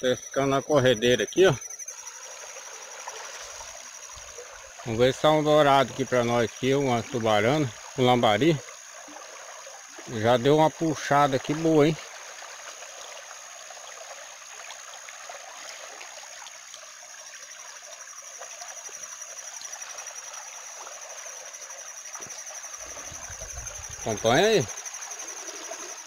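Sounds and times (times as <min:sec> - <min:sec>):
thin high tone: 0:00.0 - 0:02.0, 0:22.2 - 0:24.8.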